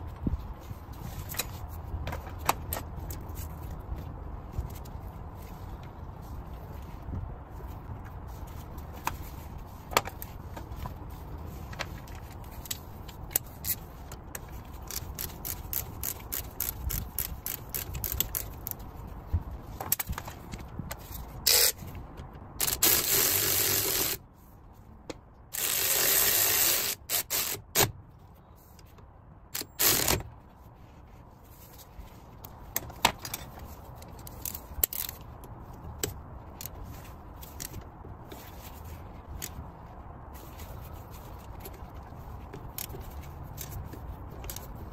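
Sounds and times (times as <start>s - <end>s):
metal clicks taps and scrapes: 11.7s - 18.9s, 32.4s - 39.6s, 41.3s - 44.8s.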